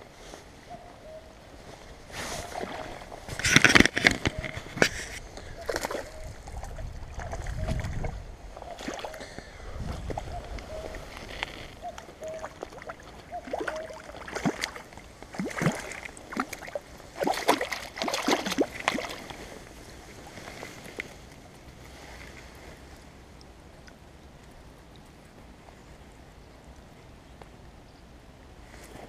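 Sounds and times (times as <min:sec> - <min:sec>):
river water splashing: 0:02.0 - 0:09.4, 0:10.1 - 0:25.6.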